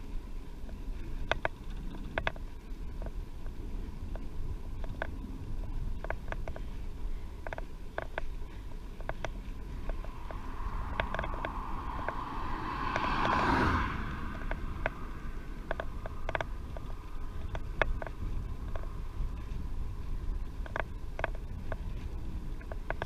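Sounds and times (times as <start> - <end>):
bicycle clicks and creaks: 0.0 - 23.0
wind rumbling on microphone: 0.0 - 23.0
rush of noise: 9.0 - 20.0.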